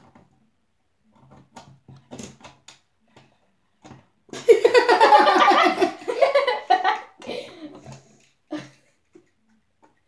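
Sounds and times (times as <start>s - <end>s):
girls laughing loudly: 4.4s - 7.5s.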